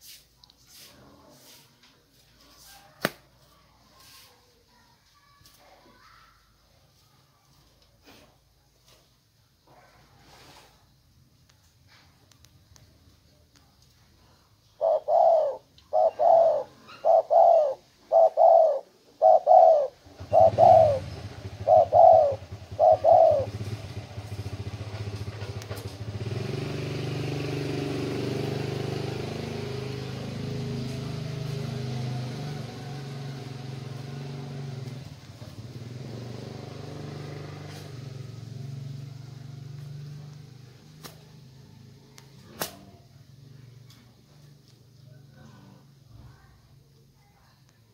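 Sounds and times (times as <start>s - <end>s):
dove cooing: 14.7s - 24.0s.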